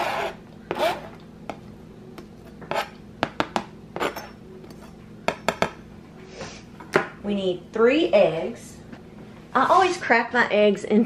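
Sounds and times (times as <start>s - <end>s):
knife scraping plastic cutting board: 0.0s - 1.2s, 2.4s - 3.0s.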